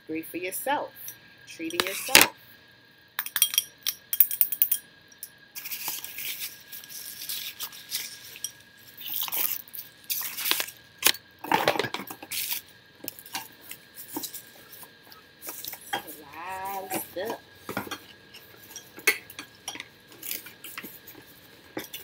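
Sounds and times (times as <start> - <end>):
packaging rustling and crinkling: 5.6 - 10.8.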